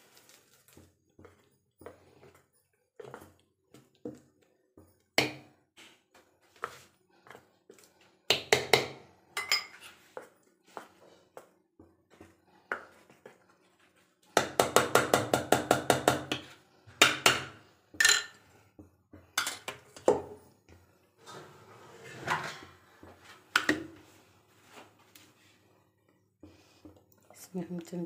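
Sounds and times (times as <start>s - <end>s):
spoon stirring batter: 0.6s - 21.3s, 22.0s - 28.0s
spoon clinking against bowls: 9.4s - 9.8s, 18.0s - 18.4s.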